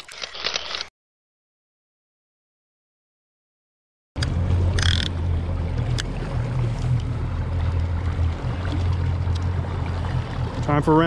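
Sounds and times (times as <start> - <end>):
boat noise: 4.2 - 11.0
outboard motor humming: 4.2 - 11.0.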